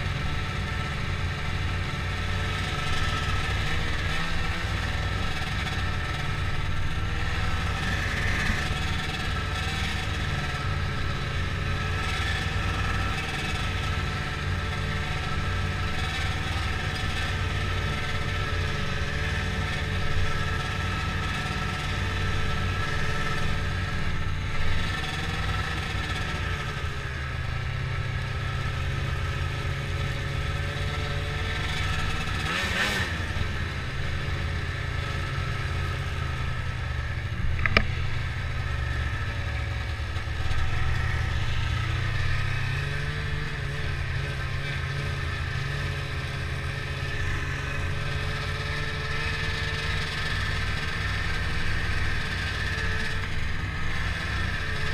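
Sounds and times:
snowmobile engine running: 0.0s - 54.9s
sharp click: 37.6s - 37.9s.

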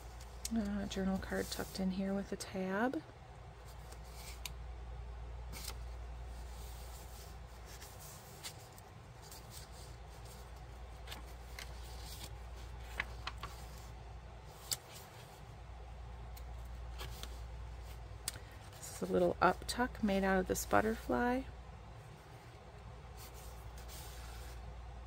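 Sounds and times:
low steady hum: 0.0s - 25.0s
paper pages rustling: 5.5s - 15.4s, 16.4s - 18.0s.

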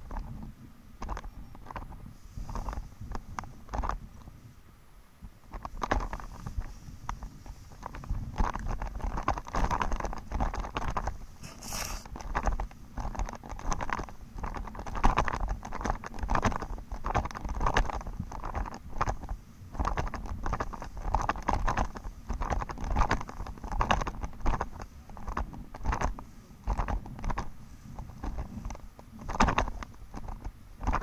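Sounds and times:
footsteps on grass: 11.4s - 12.1s
nylon fabric rustling: 11.4s - 12.1s.

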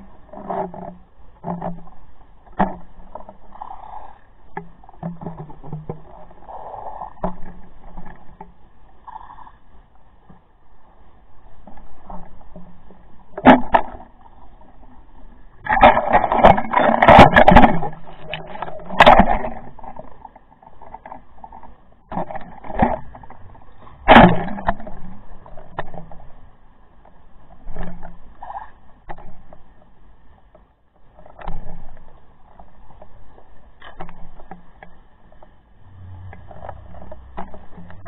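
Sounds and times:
underwater water rushing: 0.0s - 29.5s, 31.2s - 38.0s
faint high whine: 35.7s - 38.0s.

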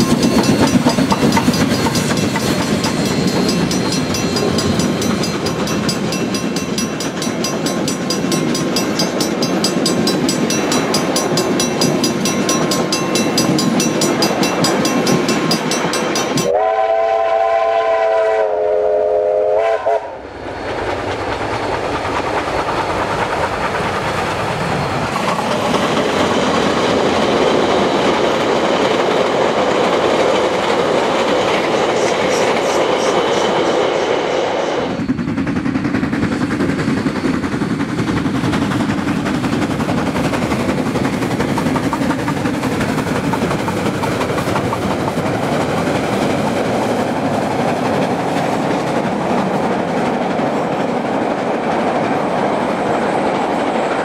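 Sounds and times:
crossing bell ringing rapidly: 0.0s - 16.6s
train carriages clacking over crossing: 0.0s - 17.0s, 21.2s - 34.2s, 34.9s - 54.0s
steam locomotive whistle: 16.3s - 20.3s.

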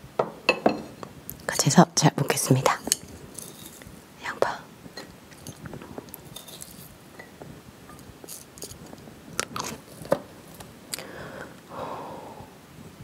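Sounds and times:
soft rustling: 2.4s - 11.1s.

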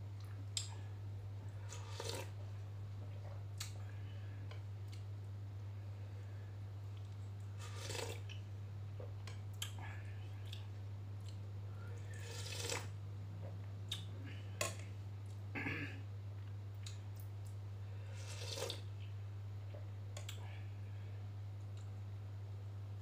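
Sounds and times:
slurping broth: 1.6s - 2.4s, 7.6s - 8.3s, 12.0s - 13.0s, 18.0s - 18.9s.

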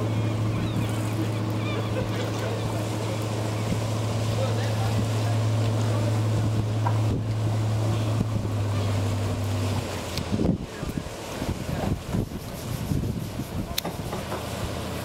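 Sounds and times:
boat engine droning: 0.0s - 15.0s
wind buffeting microphone: 6.2s - 14.7s.

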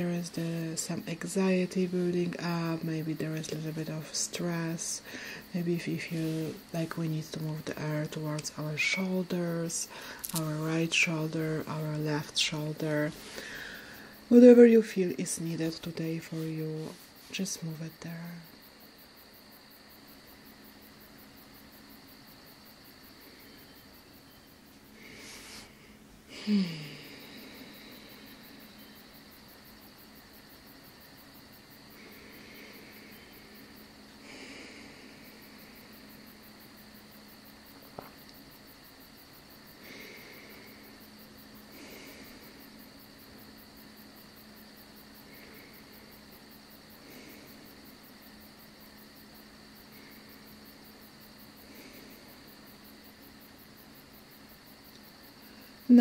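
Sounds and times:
slow breathing: 5.0s - 5.5s, 9.9s - 10.3s, 13.1s - 14.3s, 22.9s - 29.5s, 30.8s - 37.0s, 39.4s - 48.4s, 49.6s - 53.0s.

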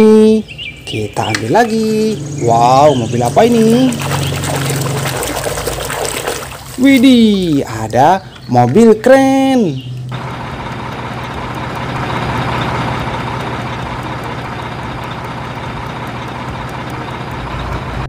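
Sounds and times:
diesel engine droning: 0.0s - 18.0s.

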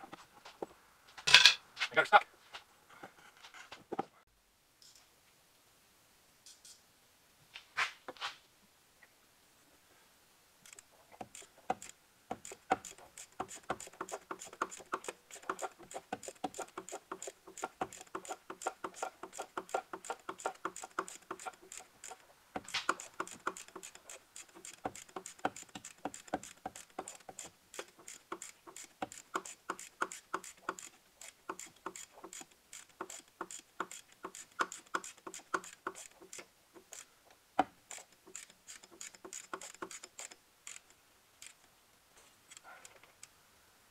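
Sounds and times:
ratchet wrench clicking: 10.7s - 37.1s, 37.9s - 41.6s.

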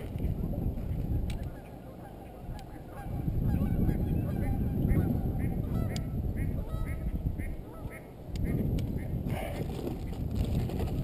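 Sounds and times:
bird honking: 1.1s - 9.2s.

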